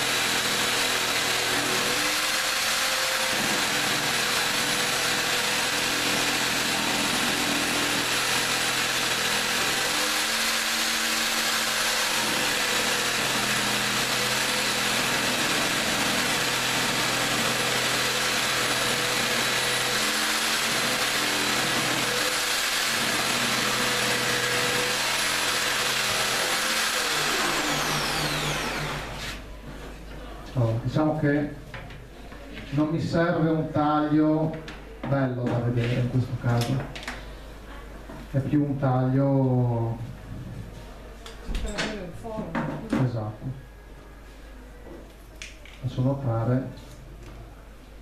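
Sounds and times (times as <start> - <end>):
motor winding down: 0.0 - 29.4
electric jigsaw sawing: 0.0 - 29.5.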